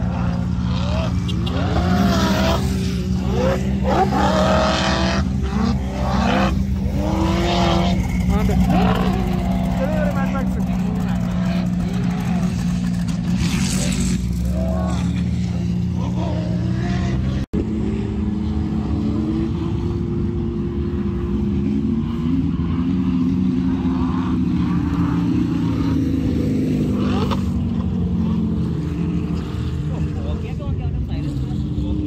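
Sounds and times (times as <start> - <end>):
off-road engines revving: 0.0 - 32.0
voices of onlookers: 8.1 - 13.0.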